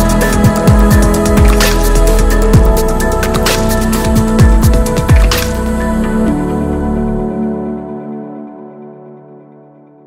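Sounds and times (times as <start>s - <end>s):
electronic music with fast beat: 0.0s - 5.8s.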